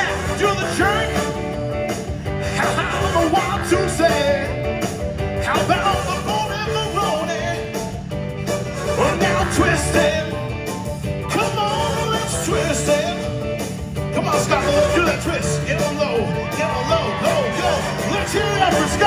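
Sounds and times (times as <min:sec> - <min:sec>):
live band playing: 0:00.0 - 0:19.0
man singing into microphone: 0:02.5 - 0:04.5, 0:08.9 - 0:10.4, 0:11.3 - 0:13.3.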